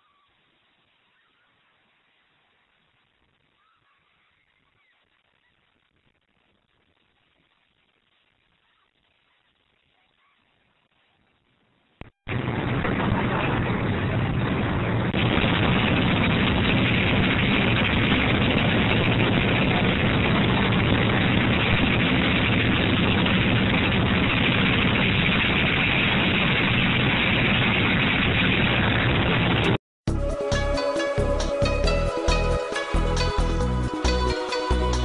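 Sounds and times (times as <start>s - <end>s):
wind rumble on microphone: 12.3s - 29.8s.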